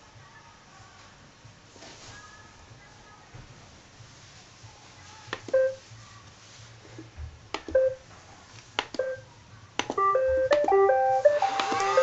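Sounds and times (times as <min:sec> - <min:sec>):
short electronic beeps: 0:05.6 - 0:05.8
button clicks: 0:09.8 - 0:10.8
electronic start-up melodies: 0:10.0 - 0:12.0.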